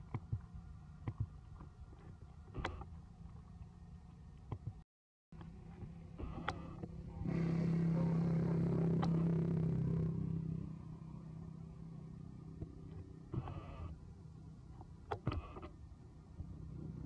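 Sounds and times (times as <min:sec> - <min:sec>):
vehicle engine passing by: 0:07.0 - 0:13.3.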